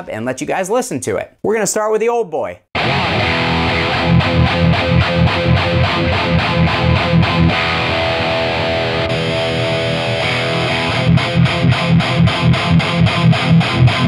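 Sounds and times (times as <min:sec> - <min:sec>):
distorted electric guitar chugs: 0:02.8 - 0:14.0.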